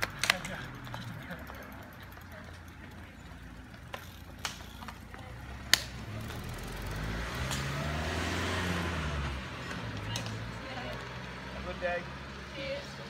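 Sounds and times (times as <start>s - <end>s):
cleats clipping into pedals: 0.0s - 6.5s
vehicle driving up: 5.2s - 12.9s.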